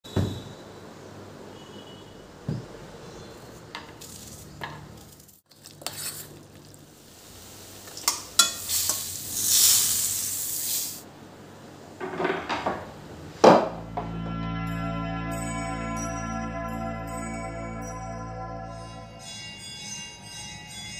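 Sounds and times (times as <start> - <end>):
fritters sizzling in hot oil: 5.4 - 11.0
spoon clinking and scraping pan: 7.9 - 9.1.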